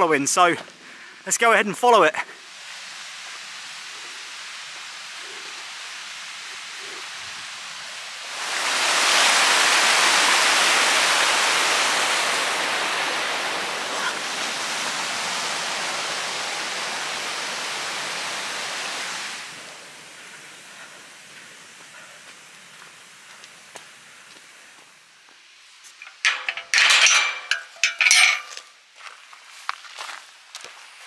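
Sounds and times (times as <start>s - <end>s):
stream water rushing: 1.2s - 24.4s.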